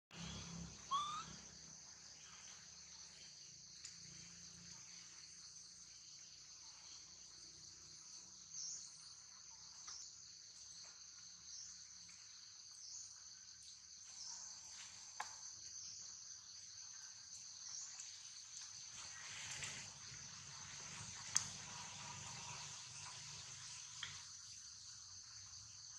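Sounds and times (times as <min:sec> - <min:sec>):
high-pitched insect chorus: 0:00.1 - 0:25.9
rising squeak: 0:00.2 - 0:01.5.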